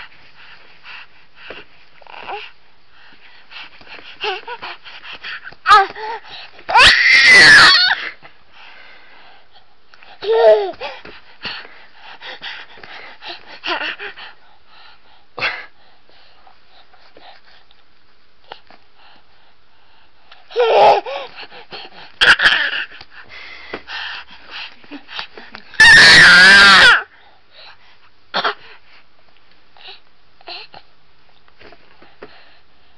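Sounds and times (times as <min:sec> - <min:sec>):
baby screaming: 0:05.7 - 0:06.0, 0:06.7 - 0:08.0, 0:25.8 - 0:27.1.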